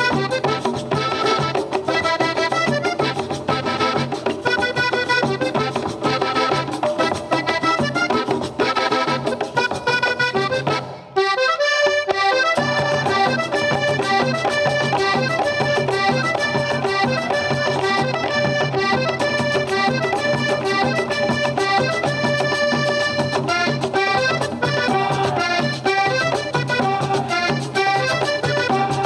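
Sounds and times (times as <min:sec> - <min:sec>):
accordion-led cumbia music: 0:00.0 - 0:29.0.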